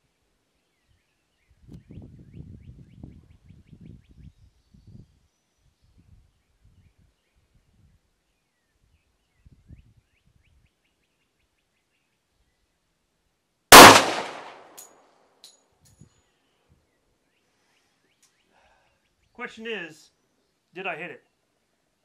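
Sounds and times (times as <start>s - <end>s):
pistol shot with echo: 13.7s - 14.8s.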